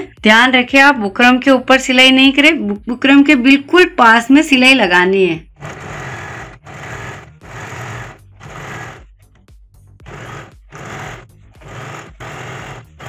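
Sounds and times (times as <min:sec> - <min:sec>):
electric sewing machine stitching: 0:05.6 - 0:09.1, 0:10.0 - 0:13.0.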